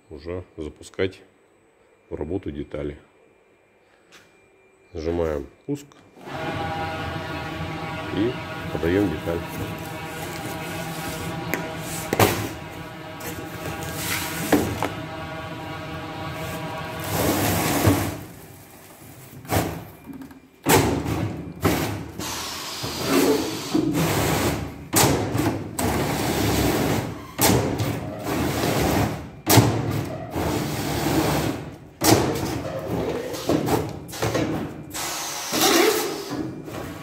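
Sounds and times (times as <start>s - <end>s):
machine running: 6.2s - 19.2s.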